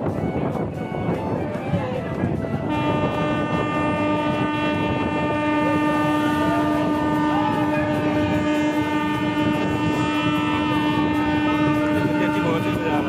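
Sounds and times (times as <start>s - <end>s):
train coaches rumbling and clattering: 0.0s - 13.0s
train horn blast: 0.0s - 13.0s.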